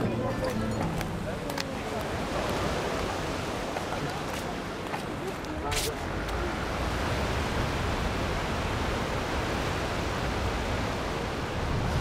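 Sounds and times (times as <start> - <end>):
sea surf rushing: 0.0 - 12.0
wind: 0.0 - 12.0.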